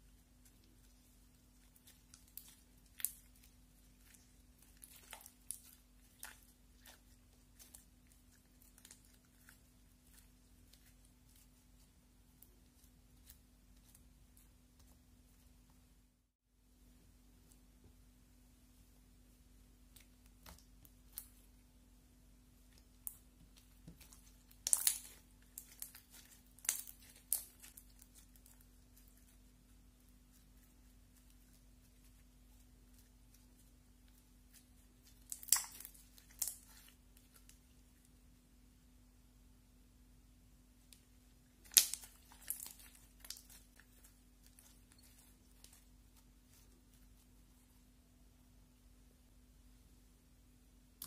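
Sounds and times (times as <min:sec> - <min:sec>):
slime sticky crackles: 0:00.0 - 0:15.6, 0:22.7 - 0:37.8, 0:40.9 - 0:47.7
slime clicking and popping: 0:23.8 - 0:28.6, 0:35.2 - 0:36.8, 0:41.6 - 0:43.6.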